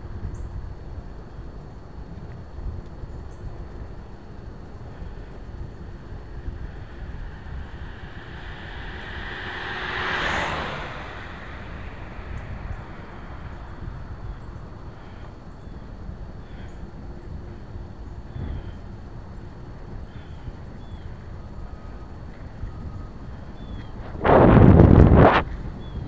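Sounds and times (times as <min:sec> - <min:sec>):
wind noise: 0:02.6 - 0:17.6, 0:24.0 - 0:26.0
wind buffeting microphone: 0:03.5 - 0:17.6
road rumble: 0:03.6 - 0:25.6.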